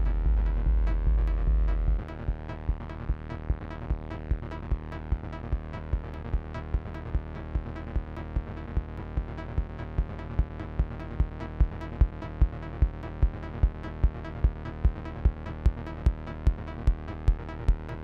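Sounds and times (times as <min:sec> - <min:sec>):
kick drum beat: 0:00.0 - 0:02.1
synth bass drone: 0:00.0 - 0:18.0.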